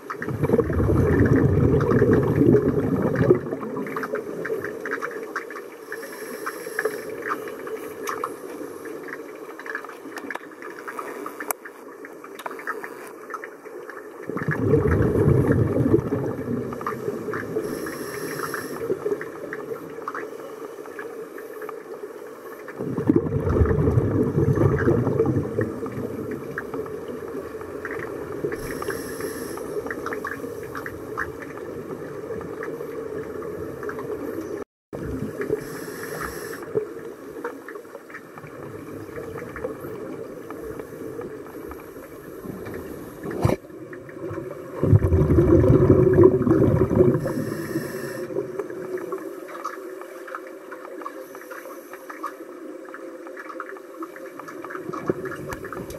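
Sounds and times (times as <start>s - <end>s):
underwater regulator bubbling: 0.0s - 9.2s, 14.3s - 20.1s, 22.7s - 37.1s, 38.4s - 49.1s.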